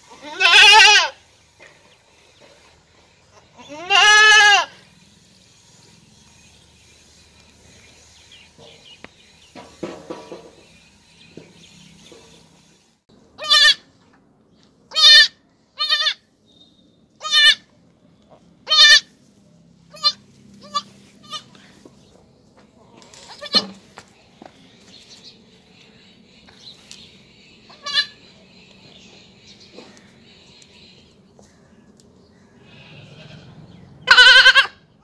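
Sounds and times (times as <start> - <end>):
goat bleating: 0.1 - 1.2, 3.5 - 4.8, 13.4 - 13.9, 14.9 - 16.3, 17.2 - 17.7, 18.6 - 19.1, 19.9 - 21.7, 23.3 - 23.8, 27.7 - 28.2, 32.6 - 34.8
young goat high-pitched bleats: 0.1 - 1.2, 3.5 - 4.8, 13.4 - 13.9, 14.9 - 16.3, 17.2 - 17.7, 18.6 - 19.2, 19.9 - 21.6, 23.2 - 23.8, 27.7 - 28.2, 32.6 - 34.8.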